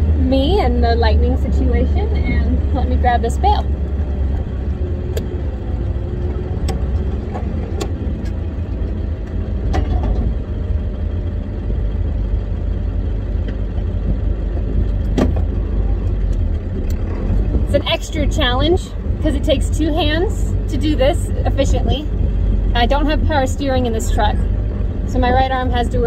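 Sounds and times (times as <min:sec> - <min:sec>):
engine low rumble: 0:00.0 - 0:26.0
sharp knocks and clanks: 0:09.7 - 0:10.4, 0:13.5 - 0:15.7.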